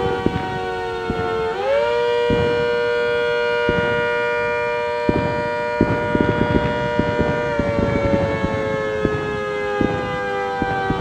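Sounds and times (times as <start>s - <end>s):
rotating-horn siren: 0.0s - 11.0s.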